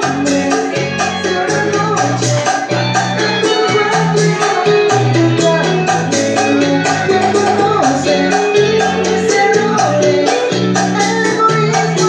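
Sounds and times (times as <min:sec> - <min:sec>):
man singing into microphone: 0:00.0 - 0:02.1
latin dance music with bass: 0:00.0 - 0:12.0.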